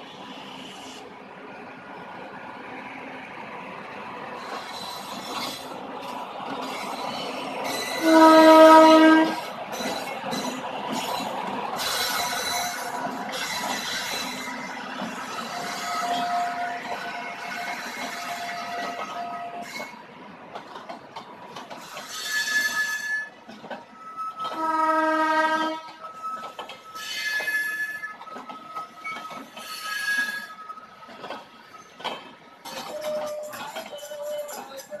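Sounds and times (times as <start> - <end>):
train wheels clattering on rails: 4.3 - 35.0
high-pitched wheel squeals: 6.6 - 20.0, 21.8 - 31.0, 32.6 - 34.8
train horn: 8.0 - 9.4, 15.6 - 19.6, 24.5 - 26.0.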